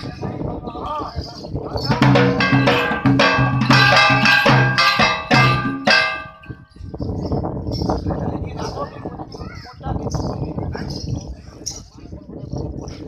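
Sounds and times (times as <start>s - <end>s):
ringing metal percussion: 1.8s - 6.8s.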